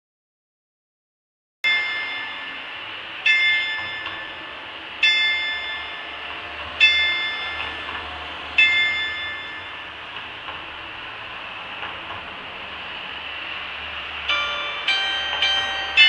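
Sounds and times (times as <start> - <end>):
clock bell striking: 1.6 - 7.9, 8.6 - 10.0, 14.3 - 16.0.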